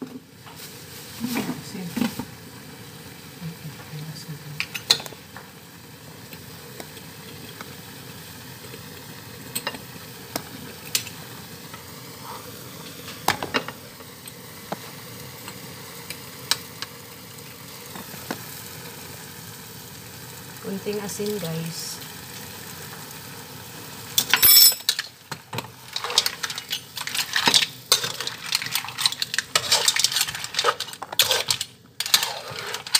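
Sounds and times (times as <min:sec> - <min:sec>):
seafood sizzling in a pan: 0:00.1 - 0:32.9
utensil scraping a pan: 0:25.6 - 0:32.9.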